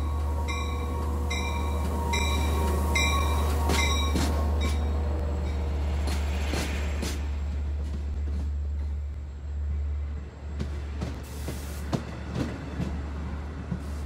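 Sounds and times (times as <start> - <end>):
locomotive bell ringing: 0.0 - 5.7.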